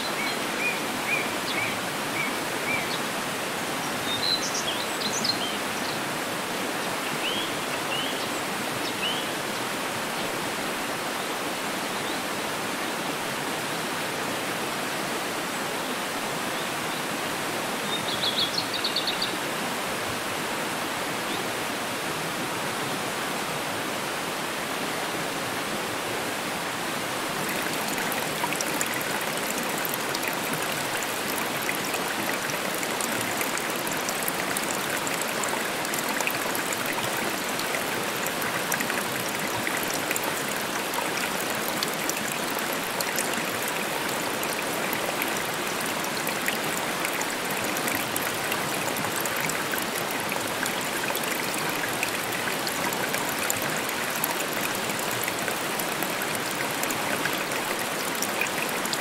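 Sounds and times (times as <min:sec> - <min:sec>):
waterfall rushing: 0:24.0 - 0:59.0.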